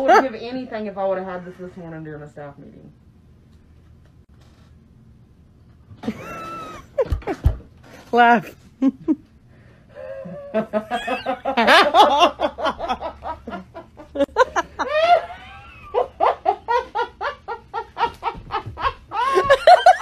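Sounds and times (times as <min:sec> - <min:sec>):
woman laughing hard: 0:06.0 - 0:07.6, 0:10.2 - 0:20.0.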